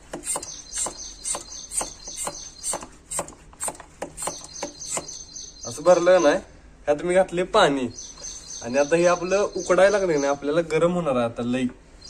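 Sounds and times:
hand pump strokes: 0:00.0 - 0:05.2.

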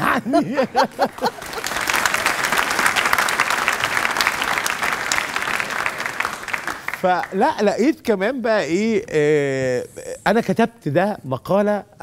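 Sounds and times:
man laughing: 0:00.0 - 0:01.7
studio audience applauding: 0:00.0 - 0:07.8.

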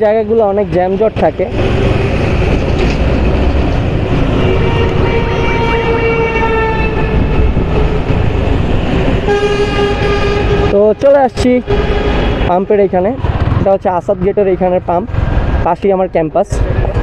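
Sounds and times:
motorcycle accelerating: 0:00.0 - 0:17.0
wind rumble on microphone: 0:01.5 - 0:10.7
vehicle horn: 0:04.3 - 0:08.1, 0:09.2 - 0:12.6.

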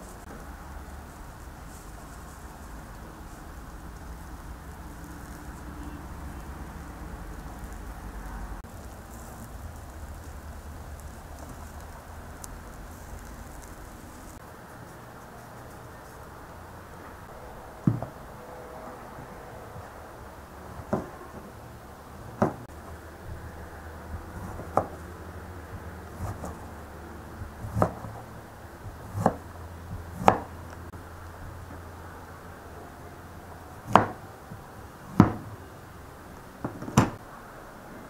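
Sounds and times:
knife chopping on cutting board: 0:26.2 - 0:26.6, 0:27.4 - 0:28.2, 0:28.9 - 0:30.5, 0:33.9 - 0:34.2.

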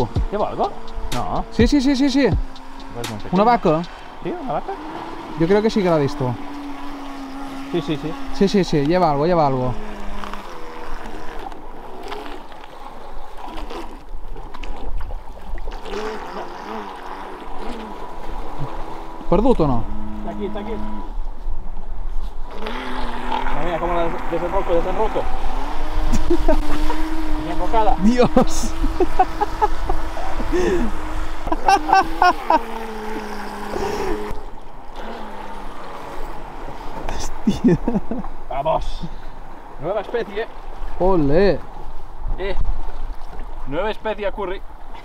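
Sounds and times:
low wind rumble: 0:00.0 - 0:12.0, 0:17.4 - 0:45.0
electric motor whine: 0:00.0 - 0:12.5, 0:15.9 - 0:21.2, 0:22.5 - 0:36.7
water splashing: 0:00.0 - 0:21.1, 0:22.4 - 0:45.0.

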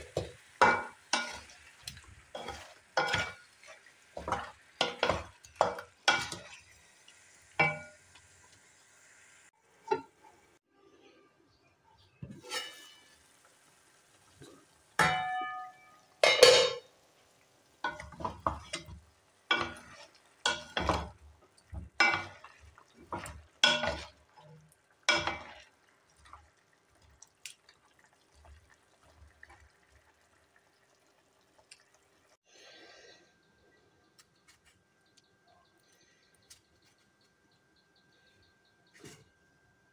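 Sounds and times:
spatula scraping a metal pan: 0:00.0 - 0:06.7, 0:12.2 - 0:13.3, 0:17.8 - 0:24.2
metal pan lid knocking: 0:15.0 - 0:16.9.

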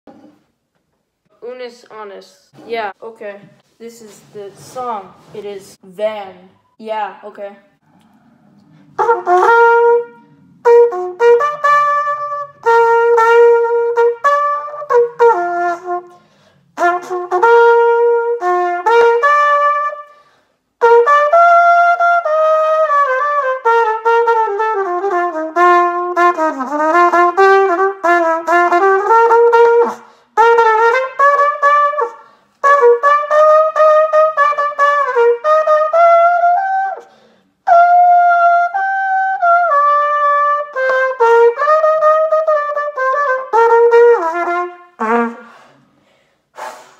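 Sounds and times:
solo trumpet melody: 0:09.0 - 0:16.2, 0:16.8 - 0:20.2, 0:20.8 - 0:37.0, 0:37.6 - 0:45.6.

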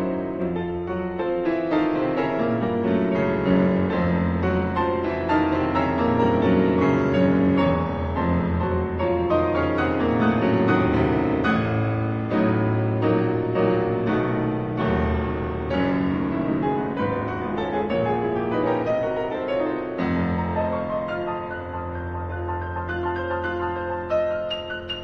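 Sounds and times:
piano background music: 0:00.0 - 0:25.0.

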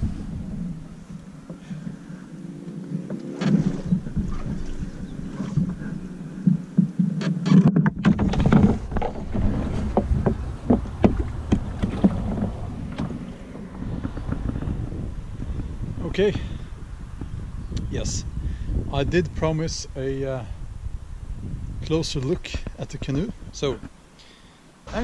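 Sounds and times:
reeds scraping canoe hull: 0:00.0 - 0:17.5
sharp knocks on hull: 0:03.4 - 0:15.0.

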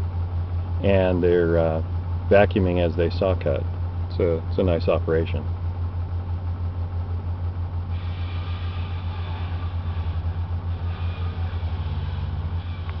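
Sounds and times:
machinery throbbing drone: 0:07.5 - 0:13.0
higher hiss: 0:07.9 - 0:13.0.

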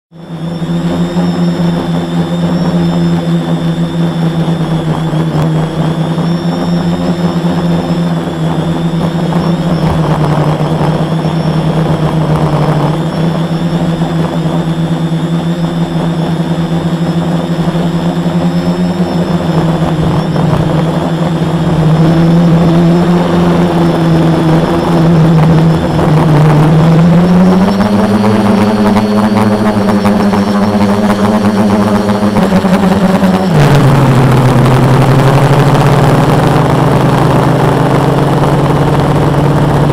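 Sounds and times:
quadcopter motors buzzing: 0:00.1 - 0:39.9.

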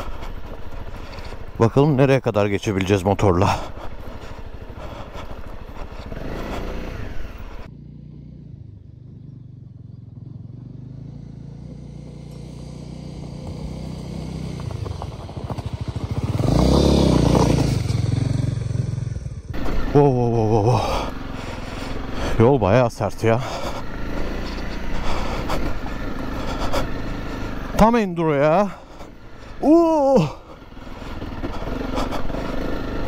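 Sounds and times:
dirt bike engine: 0:00.0 - 0:33.0.

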